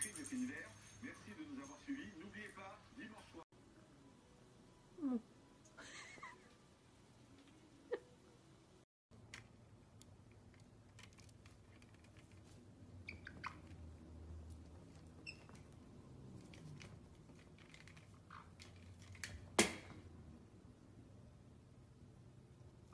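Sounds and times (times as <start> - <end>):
parrot squeaky chirps: 13.0 - 13.8, 15.2 - 15.6.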